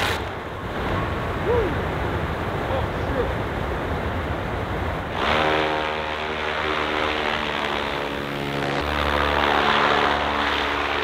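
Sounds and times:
propeller hum: 3.4 - 11.0.

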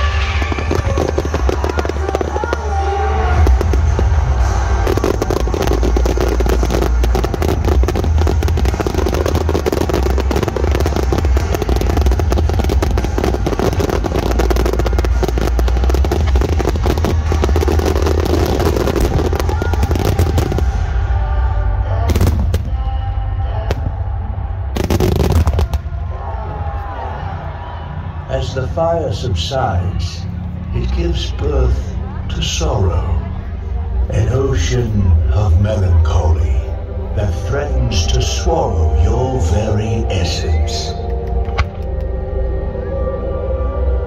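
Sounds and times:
fireworks bangs and crackling: 0.0 - 21.1, 22.1 - 22.9, 24.7 - 26.4
loud music with heavy bass: 0.0 - 28.3.

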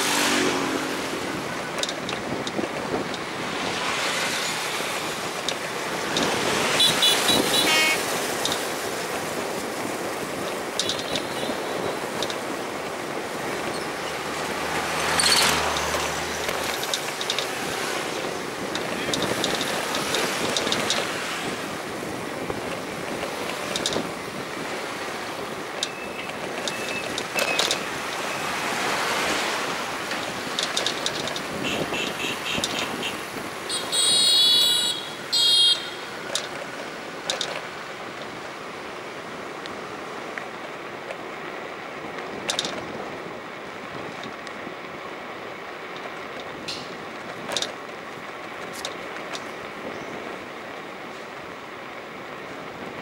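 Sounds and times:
traffic on a wet street: 0.0 - 53.0
high-pitched horn blasts: 6.8 - 8.1, 31.6 - 36.1.

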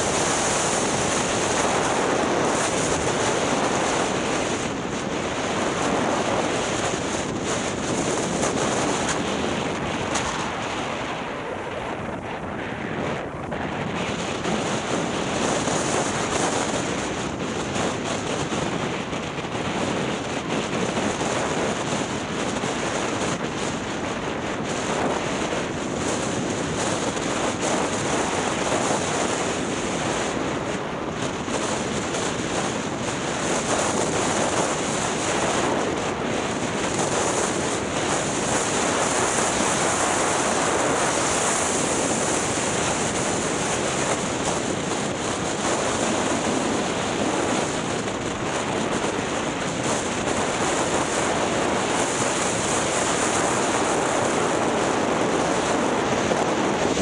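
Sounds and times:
wind buffeting microphone: 0.0 - 57.0
skis hissing over snow: 37.0 - 44.4.

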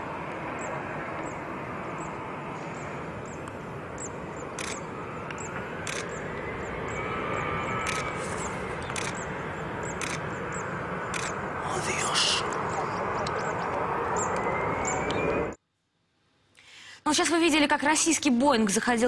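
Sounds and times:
jet engines rushing: 0.0 - 15.6
sharp clicks: 4.6 - 6.2, 7.8 - 8.1, 8.8 - 9.2, 9.8 - 10.2, 11.1 - 11.4.

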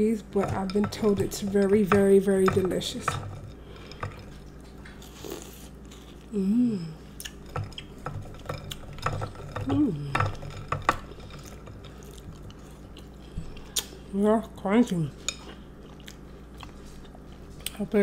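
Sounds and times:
person humming: 6.3 - 7.1, 9.6 - 10.3.

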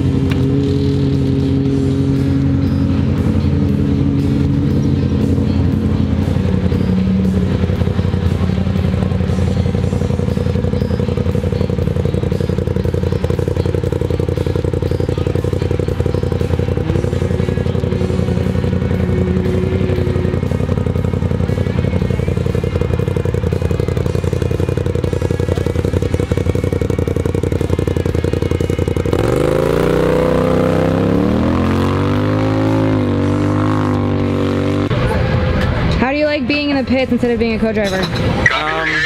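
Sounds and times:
engine running fast: 0.0 - 39.0
music playing: 0.0 - 39.0.

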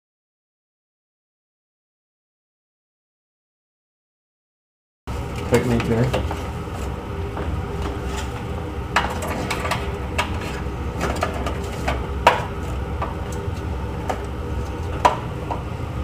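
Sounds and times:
steady low hum: 5.1 - 16.0.

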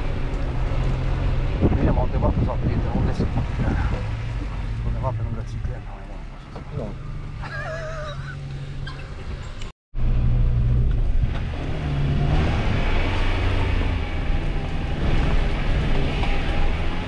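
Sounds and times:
car engine rumbling: 0.0 - 17.0.

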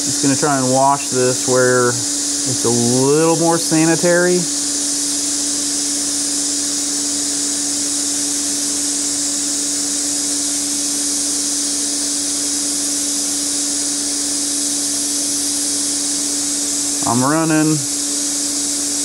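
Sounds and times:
constant hum: 0.0 - 4.8
welding arc hissing: 0.0 - 19.0.

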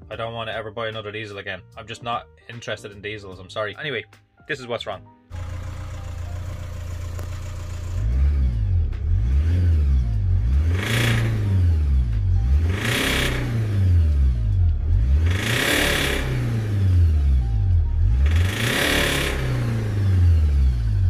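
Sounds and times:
engine knocking: 5.3 - 8.0
diesel engine idling and revving: 5.3 - 21.0.

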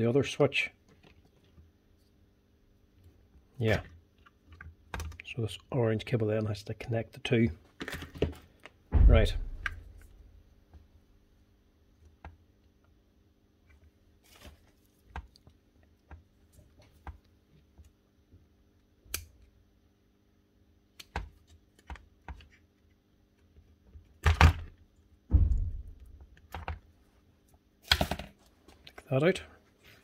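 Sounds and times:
louder knocks: 8.9 - 9.9, 25.3 - 26.2.

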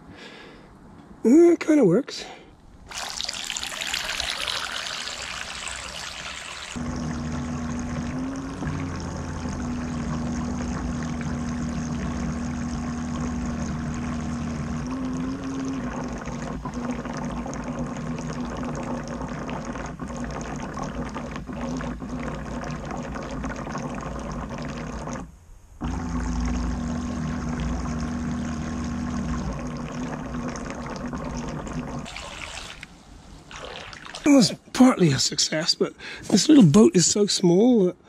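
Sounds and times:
water gurgling and sloshing: 2.8 - 35.0.

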